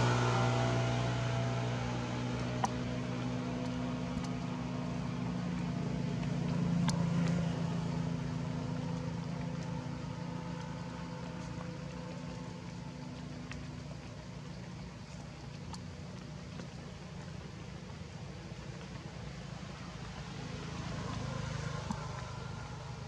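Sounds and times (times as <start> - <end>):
motor engine droning: 0.0 - 23.0
faint clicks: 3.6 - 4.5, 8.7 - 19.4, 21.0 - 23.0.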